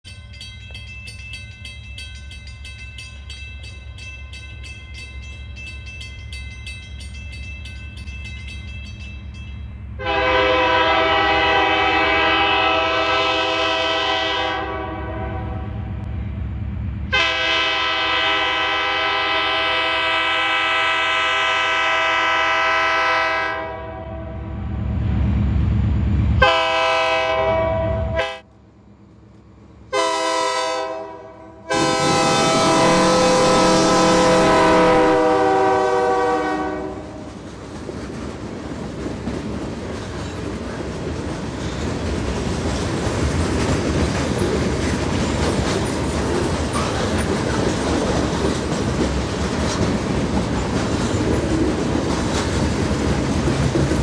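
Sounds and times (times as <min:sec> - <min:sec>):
locomotive air horn blasts: 0:10.0 - 0:15.9, 0:17.1 - 0:24.5, 0:26.4 - 0:28.5, 0:29.9 - 0:37.3.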